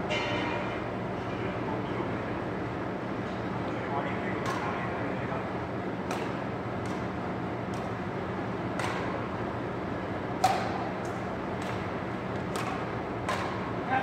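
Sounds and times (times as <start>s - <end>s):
racket hitting shuttlecock: 4.4s - 4.7s, 6.0s - 8.0s, 8.7s - 9.3s, 10.4s - 13.7s.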